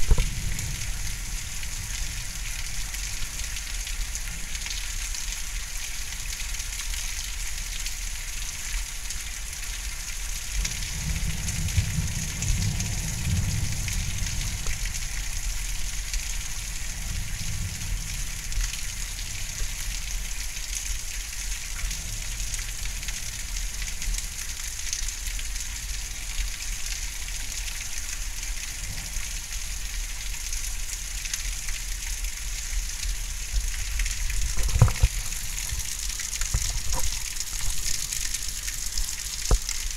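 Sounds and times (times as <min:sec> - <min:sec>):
low thunder rumble: 0:00.0 - 0:02.4, 0:10.8 - 0:15.0
heavy rain falling: 0:00.0 - 0:39.9.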